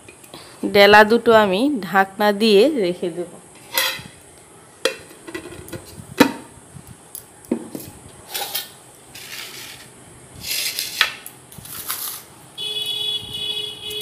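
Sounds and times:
dishes scraping and rubbing: 3.6 - 4.2, 7.7 - 12.3
dishes knocking and clinking: 4.8 - 6.5.

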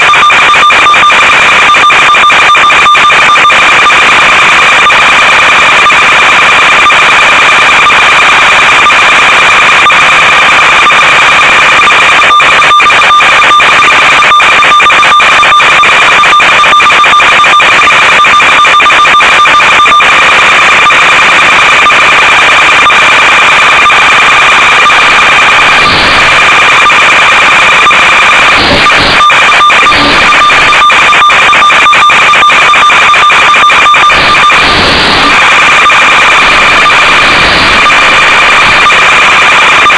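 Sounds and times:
crackles: 0.0 - 39.9
loud static hiss: 0.0 - 39.9
high whining tones: 24.1 - 39.9.

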